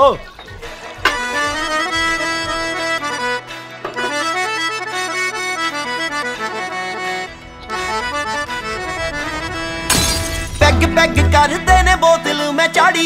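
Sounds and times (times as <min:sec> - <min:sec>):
accordion-like melody: 0:01.0 - 0:13.0
bass line: 0:05.8 - 0:12.2.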